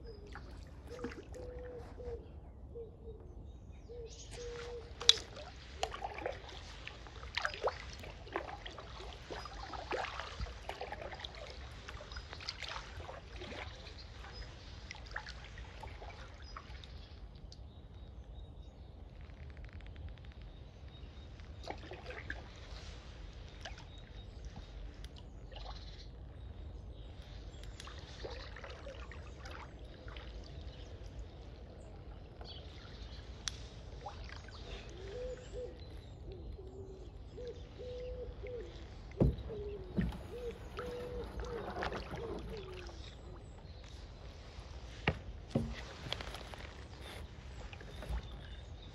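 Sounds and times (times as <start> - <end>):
paddle drips and splashes: 0.0 - 2.1, 4.1 - 18.2, 19.2 - 48.9
bird cooing: 0.9 - 3.2, 3.9 - 5.3, 34.7 - 43.3
paddle striking hull: 39.0 - 43.4, 44.9 - 48.5
light knocks on kayak: 39.2 - 42.8, 45.0 - 46.4.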